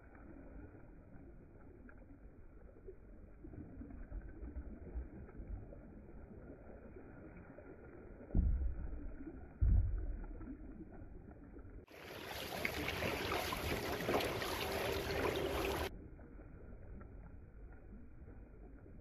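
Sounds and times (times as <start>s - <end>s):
paddles splashing in water: 11.9s - 15.9s.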